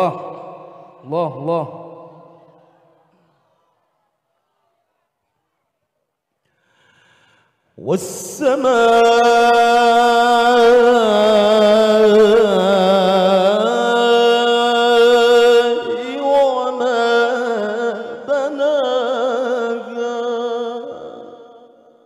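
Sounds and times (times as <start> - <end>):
man chanting into a microphone: 0.0 - 2.8, 7.7 - 22.0.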